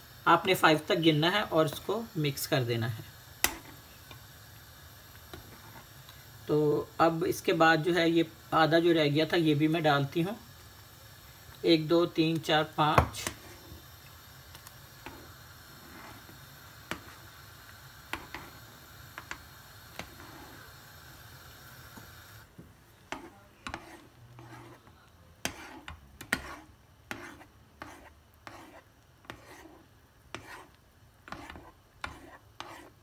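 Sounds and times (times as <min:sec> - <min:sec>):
faint hiss: 0:00.0 - 0:33.0
spoon scraping a saucepan: 0:23.1 - 0:33.0.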